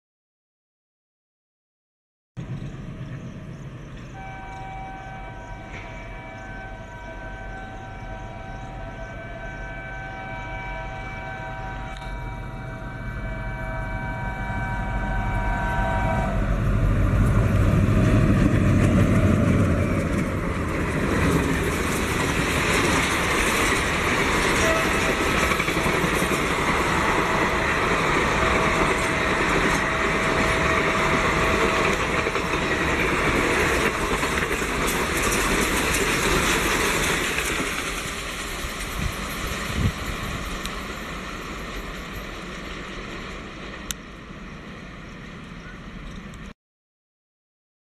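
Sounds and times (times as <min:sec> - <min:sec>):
locomotive engine rumble: 0:02.4 - 0:46.5
train horn: 0:04.2 - 0:18.2, 0:23.7 - 0:33.0
train wheels rolling: 0:14.7 - 0:46.5.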